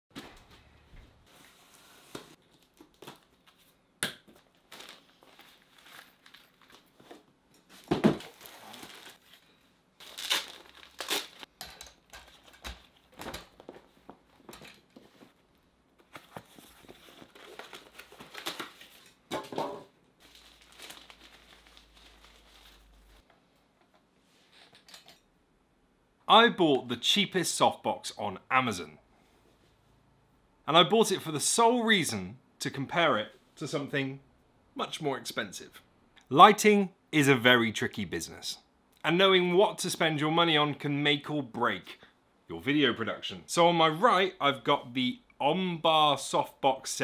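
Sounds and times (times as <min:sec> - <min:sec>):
packaging rustling and crumpling: 0:04.5 - 0:11.5, 0:20.2 - 0:23.2.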